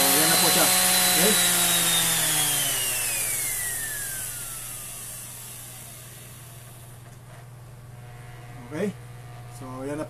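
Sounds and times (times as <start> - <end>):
sander motor winding down: 0.0 - 6.9.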